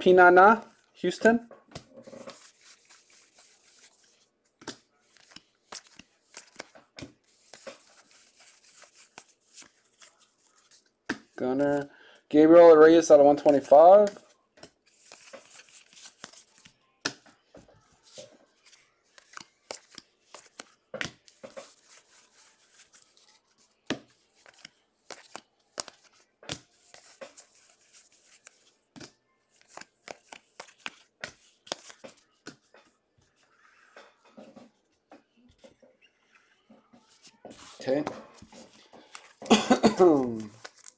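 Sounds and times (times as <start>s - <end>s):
cards sliding swishes: 2.0s - 11.8s, 14.9s - 16.7s, 18.1s - 23.4s, 24.4s - 28.7s, 29.6s - 32.6s
cards snapping: 2.2s - 6.7s, 14.9s - 17.2s, 19.2s - 23.0s, 24.4s - 32.6s.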